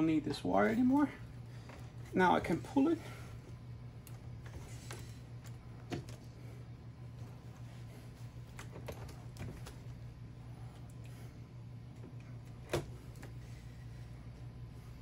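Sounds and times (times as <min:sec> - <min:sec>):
steady low hum: 0:00.0 - 0:15.0
faint clicks and handling noises: 0:03.4 - 0:06.5, 0:07.1 - 0:13.6.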